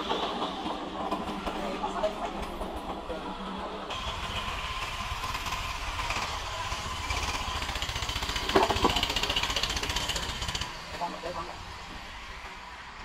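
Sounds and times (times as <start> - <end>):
sawmill engine with fast rattle: 3.9 - 11.5.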